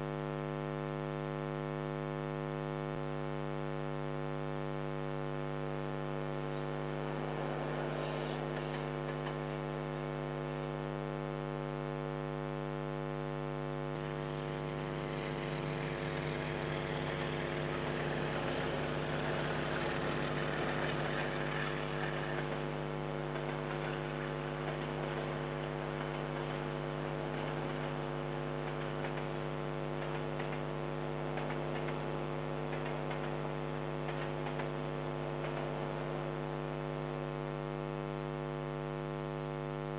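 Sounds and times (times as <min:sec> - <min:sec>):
loud electrical mains hum: 0:00.0 - 0:39.9
freight train passing: 0:06.9 - 0:09.4, 0:14.5 - 0:27.9.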